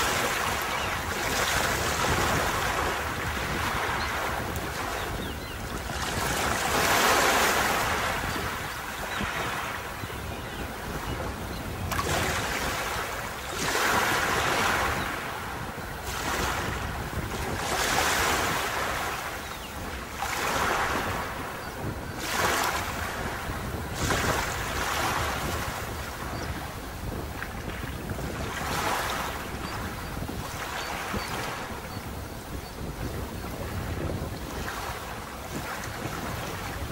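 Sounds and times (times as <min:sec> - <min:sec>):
sea waves breaking on beach: 0:00.0 - 0:36.9
wind rumble on microphone: 0:00.0 - 0:36.9.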